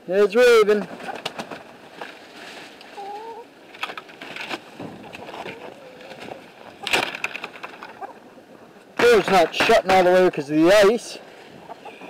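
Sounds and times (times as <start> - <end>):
hens calling: 2.8 - 3.7, 4.8 - 12.0.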